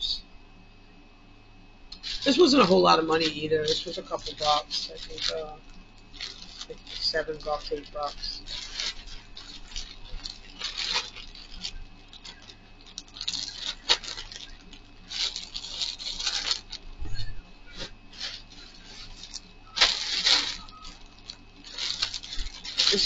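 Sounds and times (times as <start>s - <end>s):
plastic bags crinkling: 1.9s - 23.0s.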